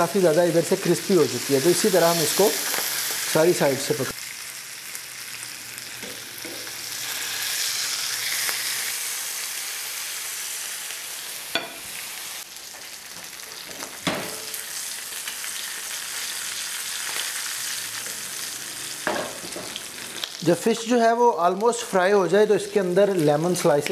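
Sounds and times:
fish sizzling in a frying pan: 0.0s - 21.0s.

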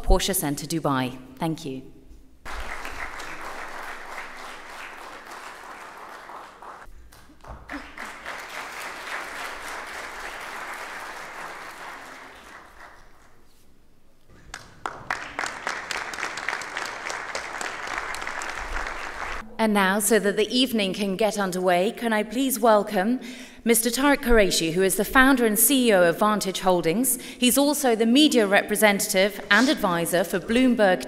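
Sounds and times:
audience applauding: 2.5s - 13.4s, 14.4s - 19.4s.

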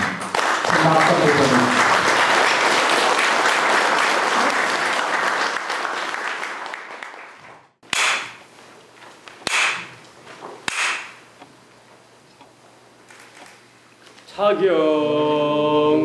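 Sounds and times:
audience applauding: 0.0s - 7.7s
wooden clapper strikes: 7.9s - 8.5s, 9.4s - 10.0s, 10.7s - 11.3s.

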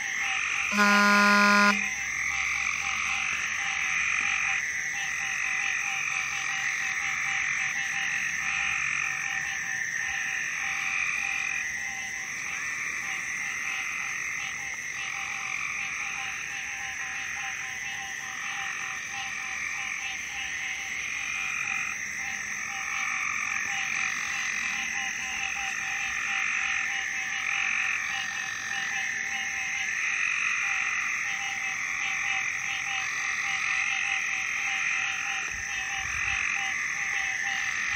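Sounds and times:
chorus of frogs calling: 0.0s - 37.9s.

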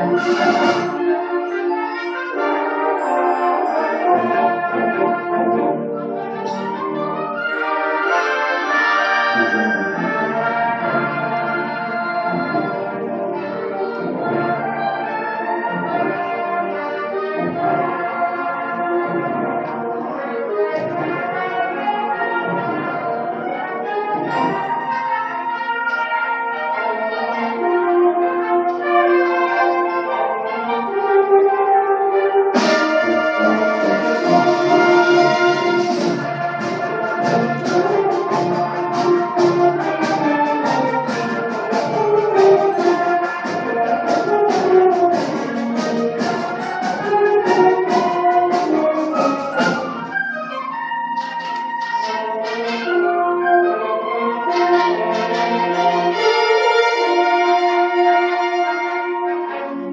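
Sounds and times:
concert band playing chords: 0.0s - 25.7s, 32.5s - 53.5s.

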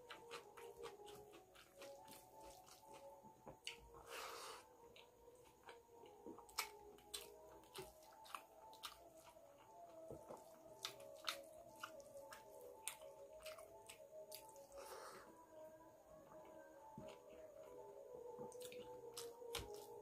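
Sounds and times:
wet chewing and lip-smacking: 0.0s - 3.9s, 4.9s - 14.8s, 18.4s - 20.0s.

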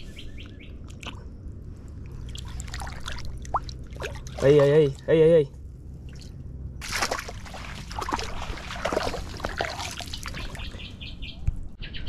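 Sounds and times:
bird chirping: 0.0s - 1.4s, 10.1s - 12.0s
shallow water splashing: 2.1s - 5.1s, 6.0s - 10.8s.

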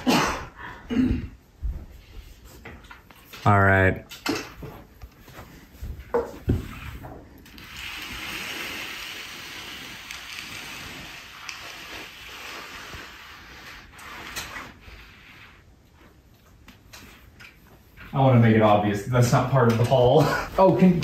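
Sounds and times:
steady hiss: 6.5s - 21.0s.

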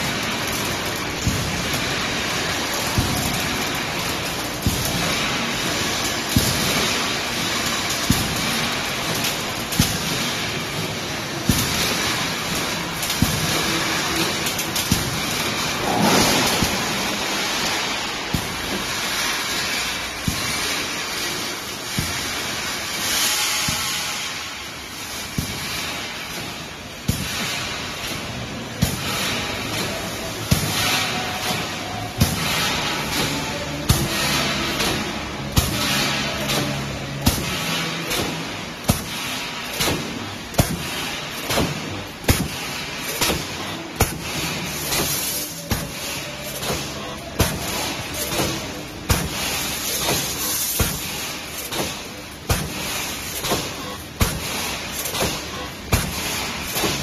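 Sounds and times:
welding machine hiss: 0.0s - 57.0s
heavy machine clunk: 8.0s - 18.9s.

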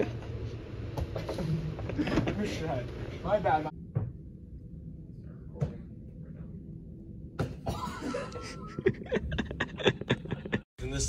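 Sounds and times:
room hum: 0.0s - 11.0s
low voices or laughter: 7.8s - 10.6s.

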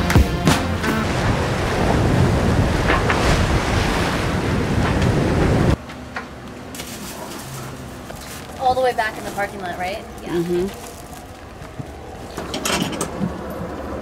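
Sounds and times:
waves rushing past hull: 0.6s - 5.8s
wind buffeting microphone: 1.0s - 5.8s.

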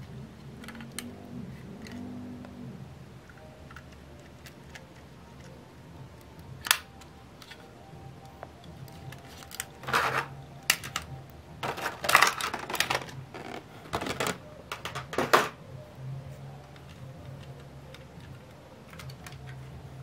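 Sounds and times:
model cars and packaging handled: 8.3s - 15.6s, 16.4s - 20.0s.

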